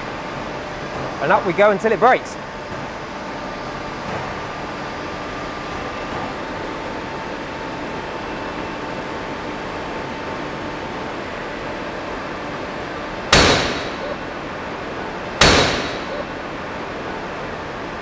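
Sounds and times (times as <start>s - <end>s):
hydraulic pump hum: 2.3s - 18.0s
rope snapping with loud bang: 13.3s - 14.1s, 15.4s - 16.2s.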